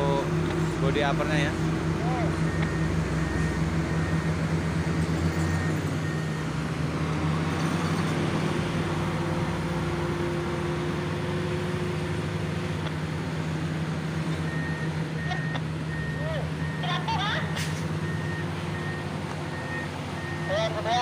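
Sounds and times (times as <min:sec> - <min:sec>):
excavator diesel engine running: 0:00.0 - 0:21.0
alarm beeping: 0:02.0 - 0:06.5, 0:14.5 - 0:21.0.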